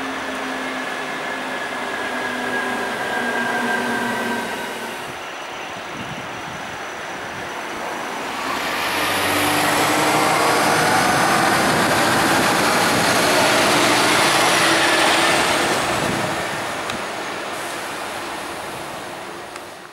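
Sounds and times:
fire engine driving past: 0:07.7 - 0:19.3.

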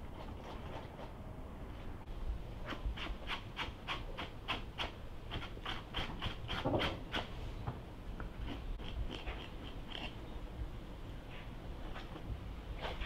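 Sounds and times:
knife scraping tripe: 0:02.6 - 0:07.3.

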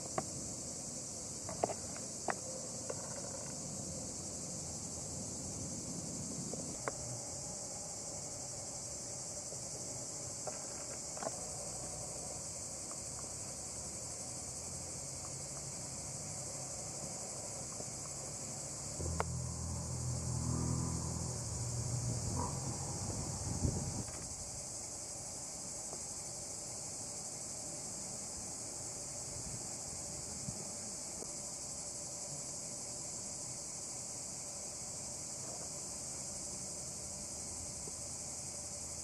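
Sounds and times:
insects chorus: 0:00.0 - 0:39.0
low rumble: 0:19.0 - 0:24.1.

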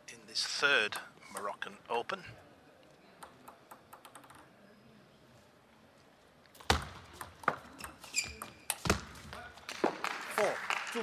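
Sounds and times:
ping pong ball clicks: 0:03.2 - 0:04.5
shoe squeak: 0:07.7 - 0:08.9.

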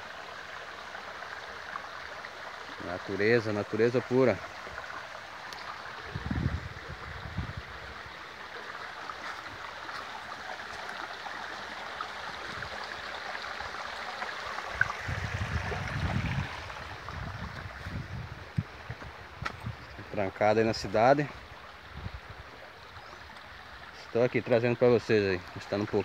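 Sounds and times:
stream rushing over rocks: 0:00.0 - 0:26.0
low microphone rumbles: 0:06.0 - 0:07.9, 0:14.9 - 0:20.1.

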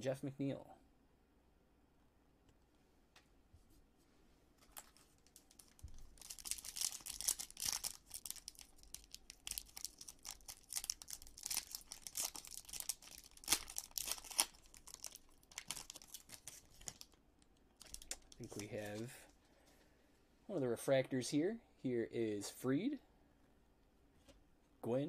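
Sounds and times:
foil wrapper crinkling and ripping: 0:04.6 - 0:17.2, 0:17.8 - 0:18.7.

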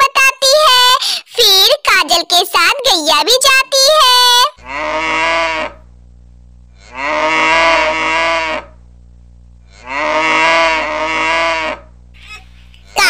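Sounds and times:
steady low hum: 0:00.1 - 0:13.0
cow mooing: 0:04.6 - 0:05.9, 0:06.8 - 0:08.8, 0:09.7 - 0:11.9.

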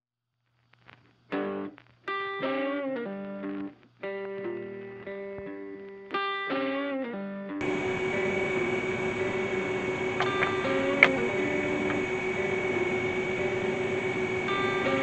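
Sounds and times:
electric guitar plucked notes: 0:01.3 - 0:15.0
steady machine noise: 0:07.6 - 0:15.0.

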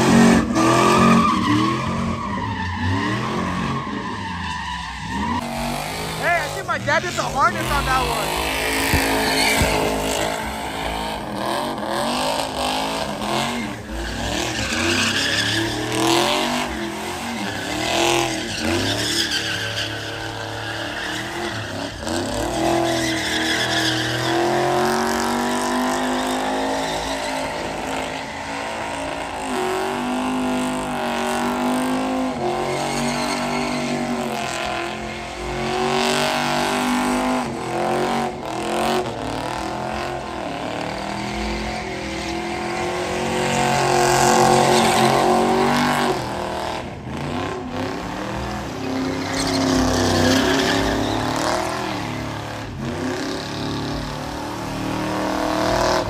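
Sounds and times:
truck engine revving: 0:05.0 - 0:33.1
tyres squealing: 0:48.8 - 0:51.9.

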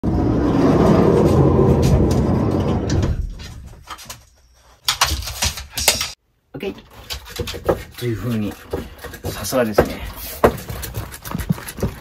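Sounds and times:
dog claws scraping on floor: 0:06.8 - 0:12.0.

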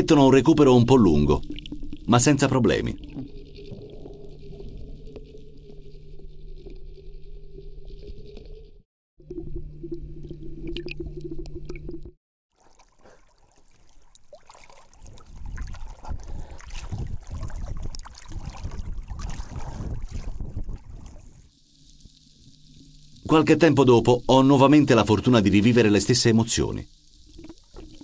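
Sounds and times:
underwater low hum: 0:00.0 - 0:25.4, 0:26.8 - 0:28.0
underwater clicks: 0:01.4 - 0:07.0
water sloshing against boat: 0:12.5 - 0:21.5
wind on microphone: 0:15.0 - 0:21.5.

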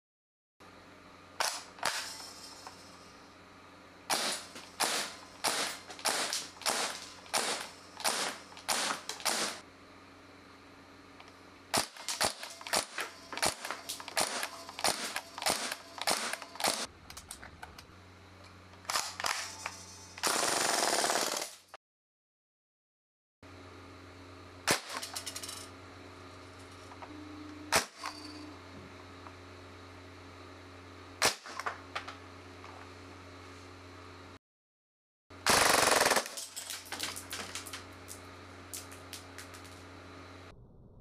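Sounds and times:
airsoft gun burst: 0:04.1 - 0:09.6, 0:11.8 - 0:16.9, 0:20.2 - 0:21.6, 0:35.4 - 0:36.4
airsoft gun firing single shots: 0:04.1 - 0:09.6.

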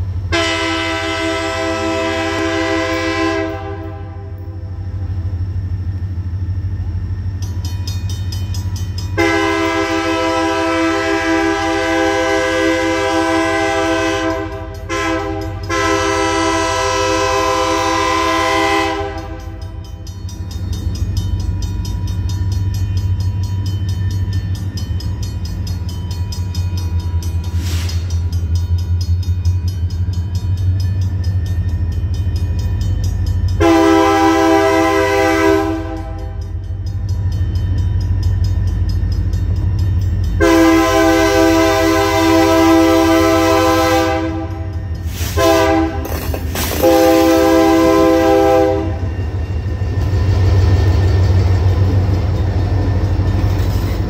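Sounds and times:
locomotive engine rumbling: 0:00.0 - 0:54.0
train air horn blasts: 0:00.3 - 0:04.6, 0:09.2 - 0:19.7, 0:33.6 - 0:36.5, 0:40.4 - 0:49.2.

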